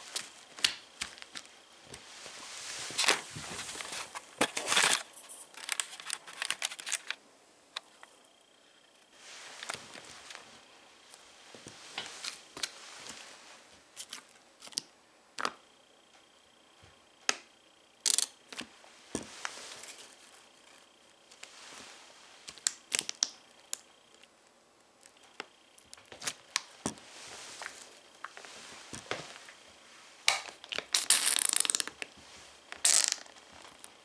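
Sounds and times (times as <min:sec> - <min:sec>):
plastic cup crackling under boot: 0:30.3 - 0:32.1, 0:32.7 - 0:33.9.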